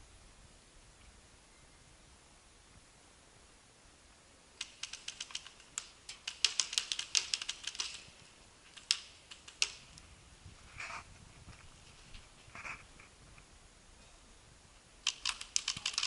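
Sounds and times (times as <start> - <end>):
paintball markers firing: 4.6 - 10.0, 15.0 - 16.0.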